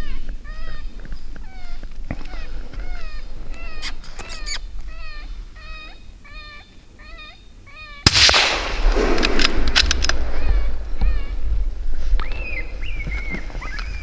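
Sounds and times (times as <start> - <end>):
loud rifle shot: 8.0 - 10.4.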